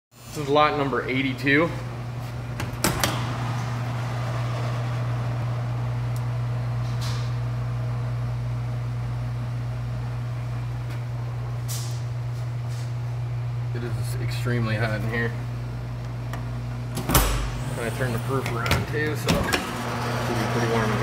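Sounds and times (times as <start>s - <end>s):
oven mechanical hum and whir: 0.2s - 21.0s.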